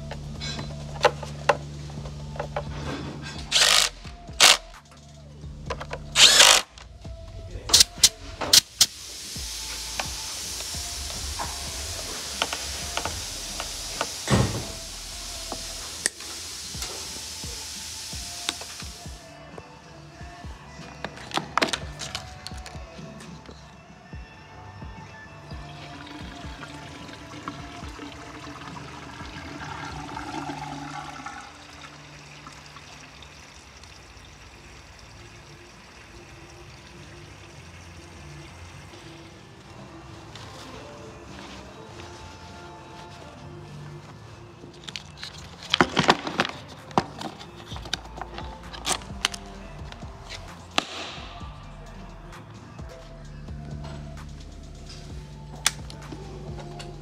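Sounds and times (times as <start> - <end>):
fuel pouring from a jerrycan: 0.0 - 4.8, 7.8 - 19.4, 25.5 - 39.4, 44.8 - 51.5
hand tool clicking on metal parts: 5.7 - 6.7
steady hiss: 6.7 - 19.5.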